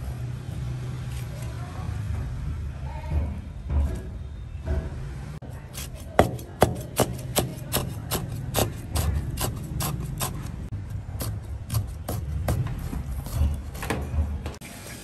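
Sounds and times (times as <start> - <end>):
rasping strokes: 5.4 - 14.2.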